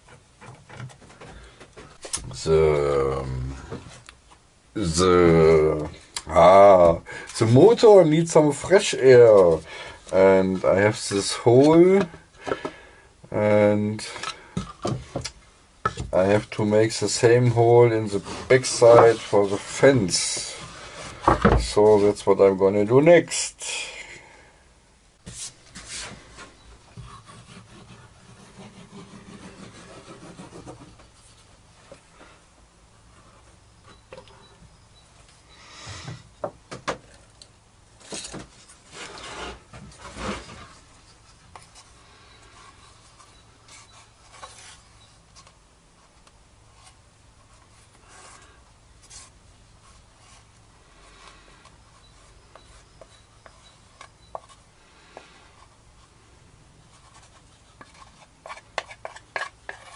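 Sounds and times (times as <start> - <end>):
hands rubbing wooden boards: 17.8 - 22.2, 25.2 - 31.4, 57.0 - 59.9
stick scraping glue on wood: 57.8 - 59.9.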